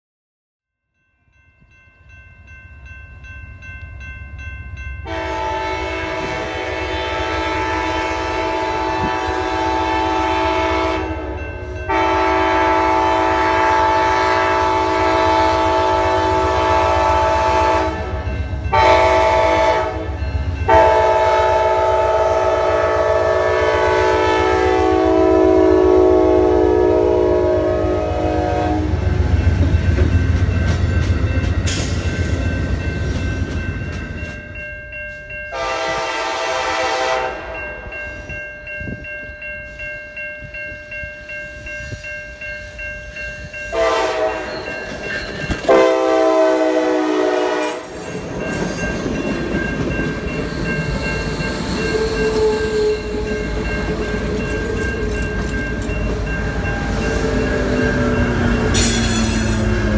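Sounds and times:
train bell ringing: 0.7 - 59.9
train rumbling: 1.7 - 59.9
locomotive air horn: 5.1 - 29.1, 35.5 - 37.6, 43.7 - 44.7, 45.7 - 48.0.

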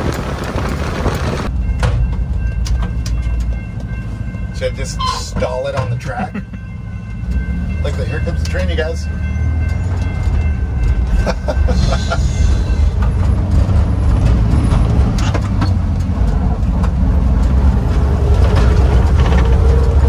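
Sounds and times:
truck engine droning: 0.0 - 20.0.

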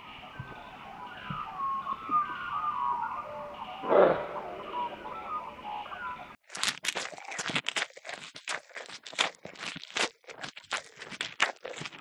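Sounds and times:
crunching and rustling: 6.4 - 12.0.

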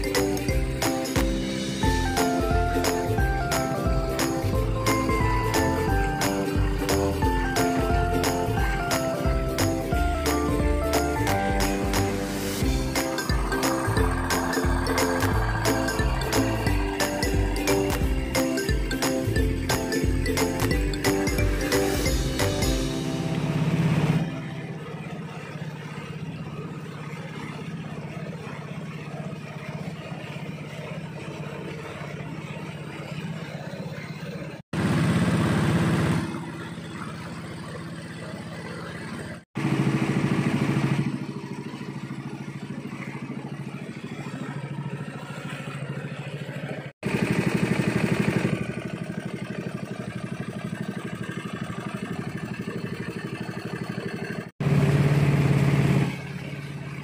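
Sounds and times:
boat motor running: 0.0 - 57.0
water rushing along hull: 0.0 - 57.0.

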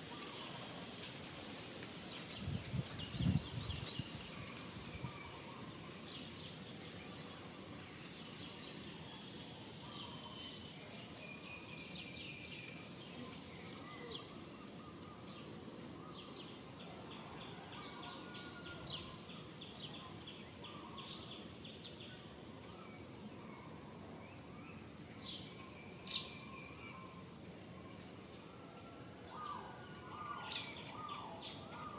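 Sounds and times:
background hiss: 0.0 - 31.9.

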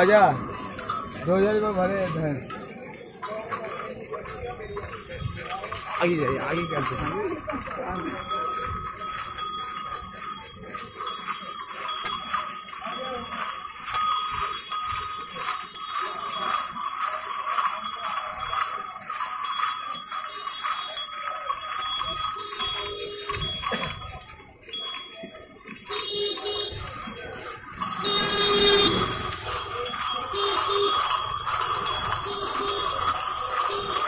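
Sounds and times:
crowd voices: 0.0 - 34.0
small bells jingling: 0.0 - 34.0.

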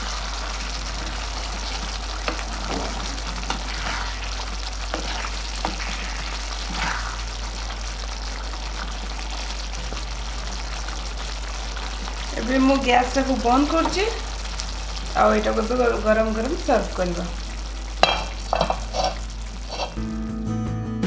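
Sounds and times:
gravy bubbling and sizzling: 0.0 - 20.1
spatula scraping a pan: 1.0 - 7.2, 18.0 - 20.0.

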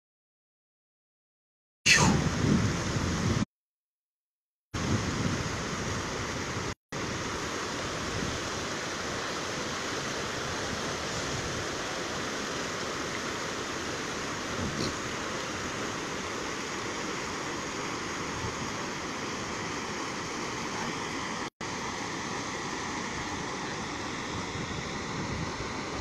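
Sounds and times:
flooded river rushing: 6.0 - 26.0.

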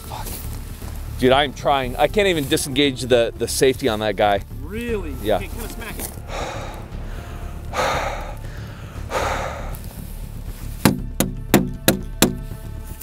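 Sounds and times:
man blowing hard: 5.4 - 10.3.

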